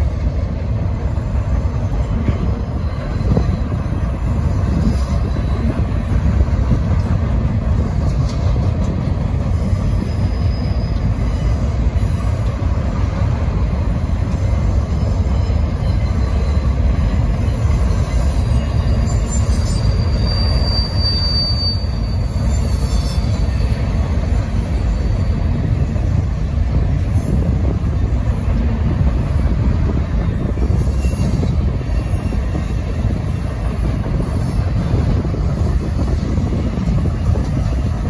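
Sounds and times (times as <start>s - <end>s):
freight train wheels rumbling: 0.0s - 38.0s
high wheel squeal: 2.6s - 6.7s, 9.5s - 12.5s, 14.2s - 26.2s, 30.2s - 38.0s.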